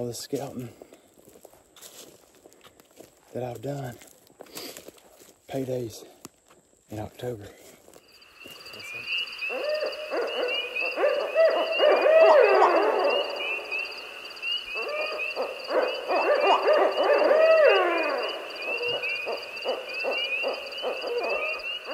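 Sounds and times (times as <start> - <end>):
insects chirping: 0.0 - 21.9
owls hooting: 8.2 - 21.9.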